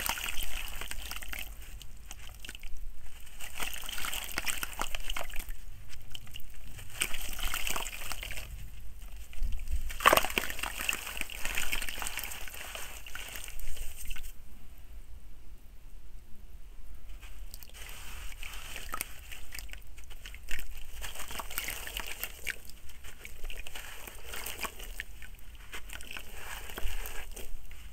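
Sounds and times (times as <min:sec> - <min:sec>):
fingers sloshing water: 0:00.0 - 0:14.3, 0:17.4 - 0:27.9
soil pattering into water: 0:00.0 - 0:14.4, 0:17.2 - 0:27.9
water splash: 0:09.9 - 0:14.2.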